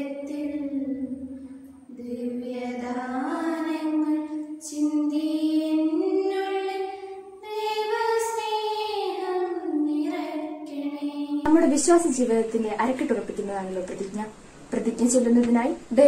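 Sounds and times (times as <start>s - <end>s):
girls singing a slow prayer song: 0.0s - 12.7s.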